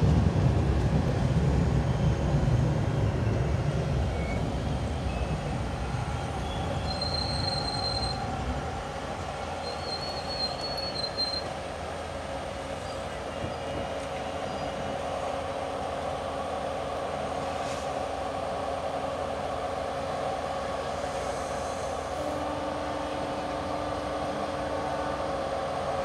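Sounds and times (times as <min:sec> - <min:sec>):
train wheels rumbling on rails: 0:00.0 - 0:26.0
high wheel squeal: 0:06.2 - 0:08.3, 0:09.6 - 0:11.6.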